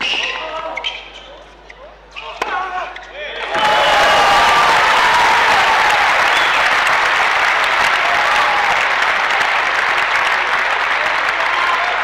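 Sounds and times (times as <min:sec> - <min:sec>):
crowd clapping: 0:03.5 - 0:12.0.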